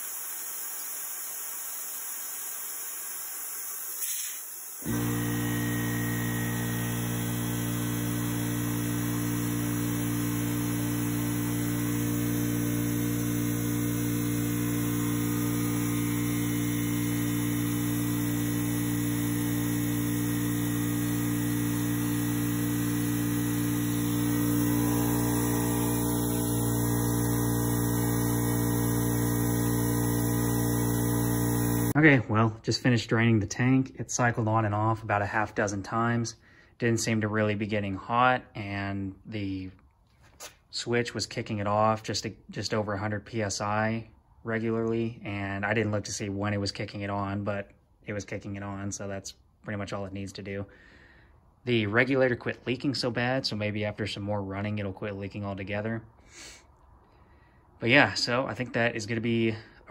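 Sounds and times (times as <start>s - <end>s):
air compressor running: 0.0s - 32.0s.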